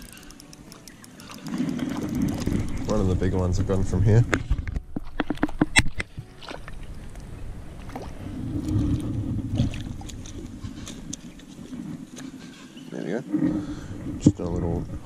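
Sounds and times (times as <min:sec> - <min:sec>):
fish splashing in water: 0:00.0 - 0:03.0.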